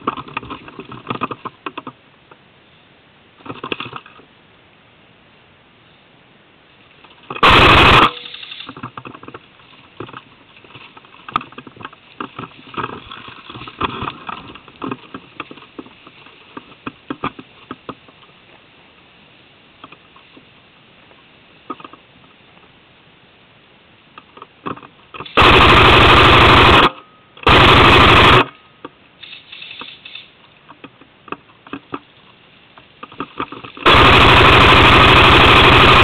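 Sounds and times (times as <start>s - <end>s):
airsoft rifle rapid burst: 7.3s - 8.8s, 25.2s - 28.6s, 33.8s - 36.0s.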